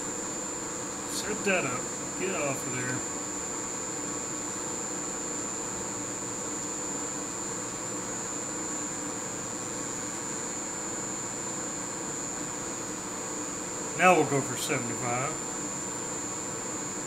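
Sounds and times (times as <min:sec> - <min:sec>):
machine hum: 0:00.0 - 0:04.5, 0:09.3 - 0:16.6
high-pitched whine: 0:01.1 - 0:03.1, 0:14.0 - 0:15.5.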